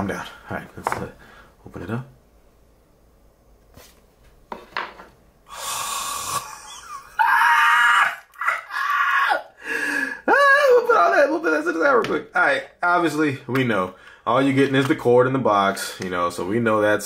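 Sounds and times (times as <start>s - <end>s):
man's excited high-pitched vocalizing: 6.4s - 9.6s, 10.2s - 11.6s.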